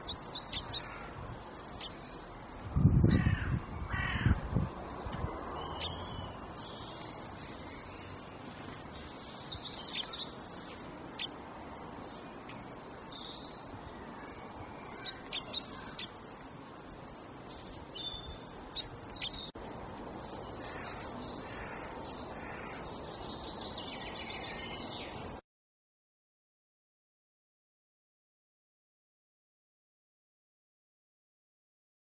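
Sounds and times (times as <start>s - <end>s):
songbirds chirping: 0.0s - 25.4s
steady background hiss: 0.0s - 25.4s.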